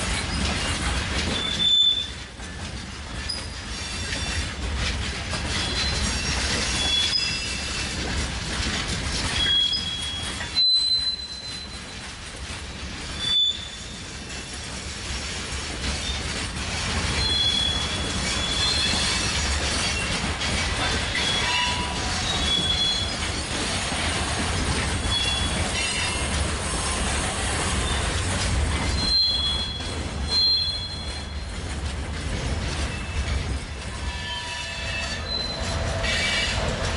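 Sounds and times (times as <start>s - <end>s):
diesel locomotive rumble: 0.0s - 36.9s
wheel flanges squealing: 0.1s - 2.3s, 5.4s - 8.1s, 9.2s - 12.0s, 13.2s - 14.4s, 17.1s - 24.1s, 25.0s - 26.3s, 27.7s - 31.5s, 32.9s - 36.9s.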